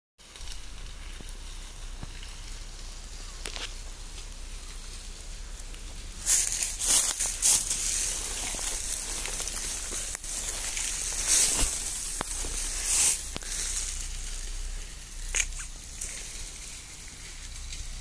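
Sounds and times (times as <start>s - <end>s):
handling noise rustling: 6.2s - 14.4s.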